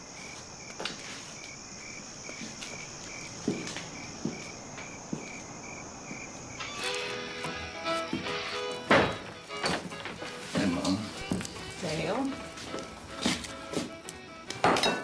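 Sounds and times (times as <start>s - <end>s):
insect trill: 0.0s - 7.4s
cricket chirping: 0.0s - 7.7s.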